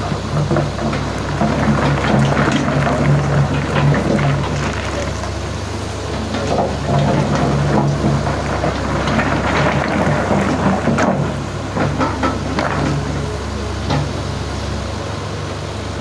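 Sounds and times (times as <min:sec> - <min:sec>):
excavator diesel engine running: 0:00.0 - 0:16.0
stones clattering and scraping: 0:00.6 - 0:05.4, 0:06.3 - 0:13.1.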